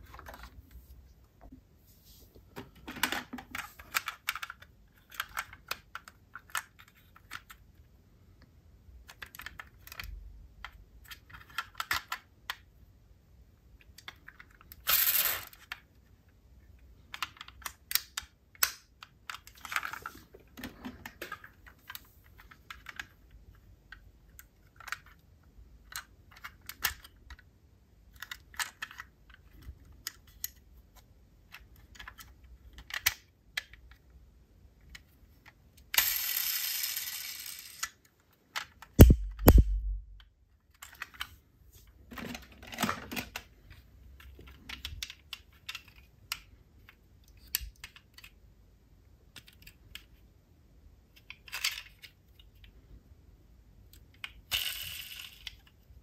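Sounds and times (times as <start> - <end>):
heavy thumps: 39.0 - 40.2.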